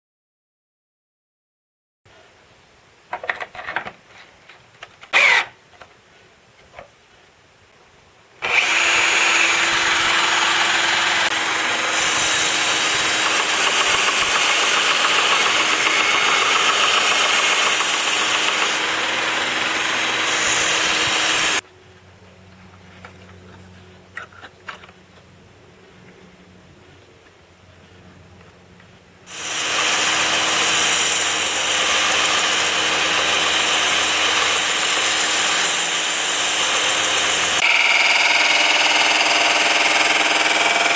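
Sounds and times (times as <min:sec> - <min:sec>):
cordless drill running: 0:05.1 - 0:05.5, 0:08.4 - 0:21.6, 0:29.3 - 0:40.9
belt sanding plywood: 0:08.4 - 0:21.6, 0:29.3 - 0:40.9.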